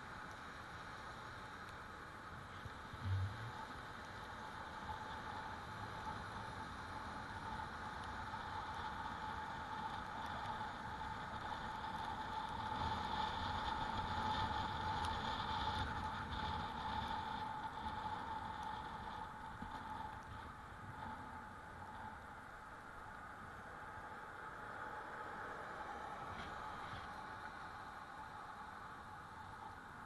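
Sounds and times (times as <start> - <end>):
wind and road noise: 0.0 - 30.0
e-bike motor whine: 2.4 - 22.3.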